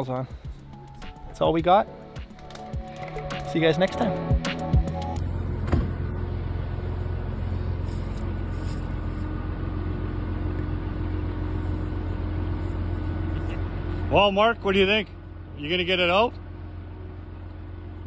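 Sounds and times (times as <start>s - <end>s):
boat engine humming: 0.0s - 18.0s.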